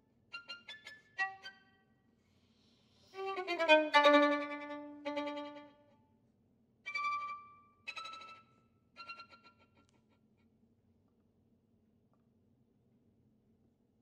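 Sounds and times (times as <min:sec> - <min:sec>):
solo violin bowed: 0:00.4 - 0:01.6, 0:03.1 - 0:05.9, 0:06.9 - 0:09.8.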